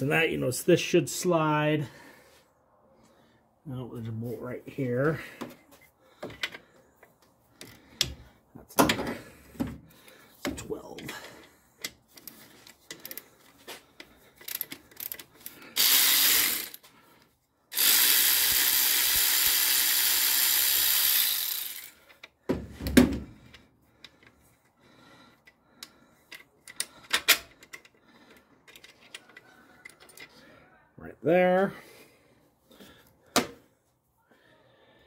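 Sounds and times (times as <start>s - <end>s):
cordless electric ratchet running: 14.5s - 16.8s, 17.7s - 22.2s.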